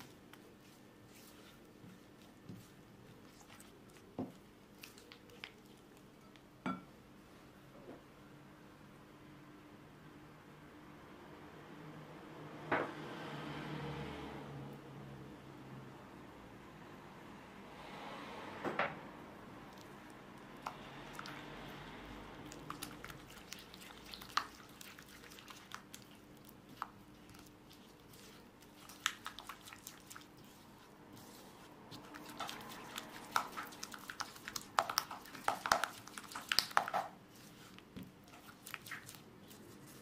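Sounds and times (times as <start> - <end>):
spatula squelching through batter: 0.0 - 6.6, 19.6 - 40.0
wet clicks: 32.0 - 37.1.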